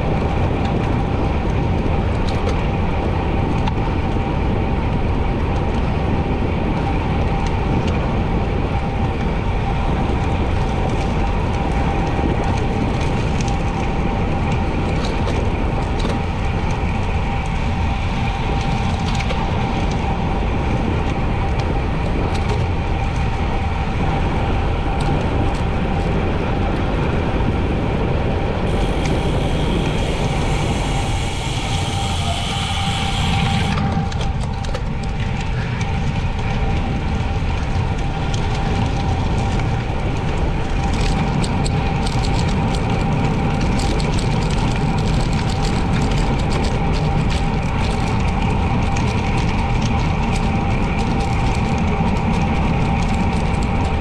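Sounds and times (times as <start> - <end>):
bicycle tyre noise: 0.0 - 54.0
wind rush on microphone: 0.0 - 54.0
bright hiss: 28.7 - 34.0.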